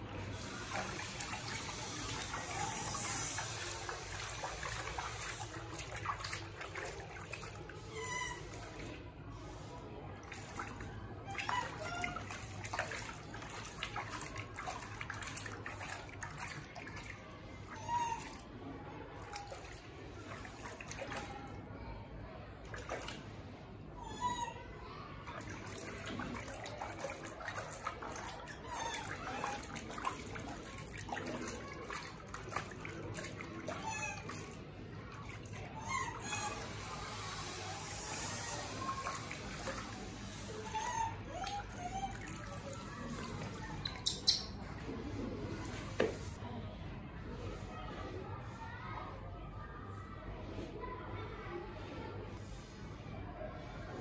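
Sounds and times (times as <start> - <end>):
water splashing in basin: 0.0 - 24.1, 25.2 - 46.4.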